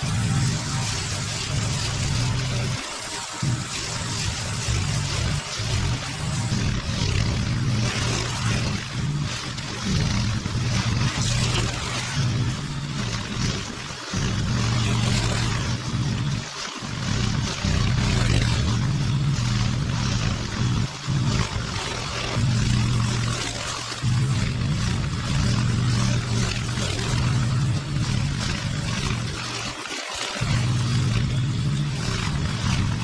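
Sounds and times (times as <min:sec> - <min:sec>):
push mower cutting grass: 0:00.0 - 0:33.0.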